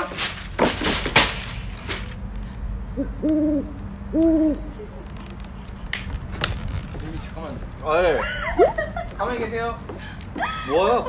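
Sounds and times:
owl-like hooting: 2.9 - 4.8.

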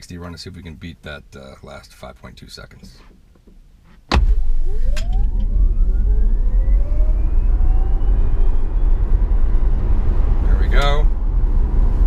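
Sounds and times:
electric motor whine: 4.8 - 9.4
tyres rumbling on road: 5.1 - 12.0.

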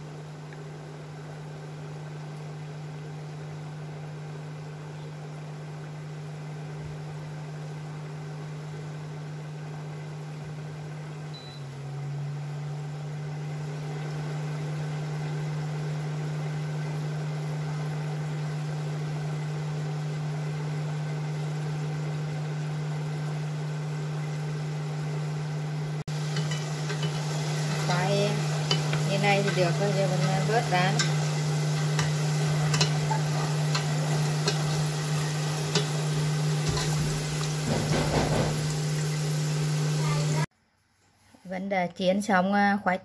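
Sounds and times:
cooker hum: 0.0 - 43.0
fries sizzling in hot oil: 11.1 - 40.5.

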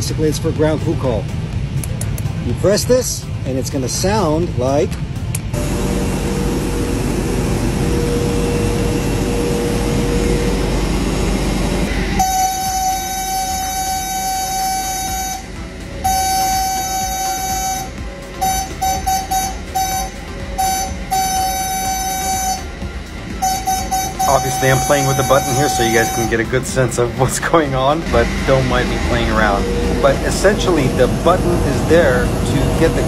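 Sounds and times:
low rumble of ramp noise: 0.0 - 33.0
aircraft call horn tone: 5.6 - 27.3.

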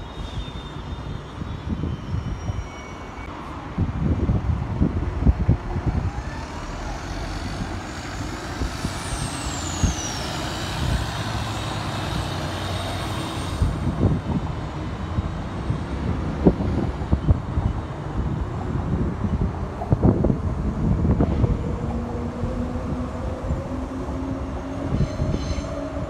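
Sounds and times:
bus engine rumble: 3.2 - 26.0
wind buffeting microphone: 3.5 - 26.0
high engine whine: 4.6 - 14.4.

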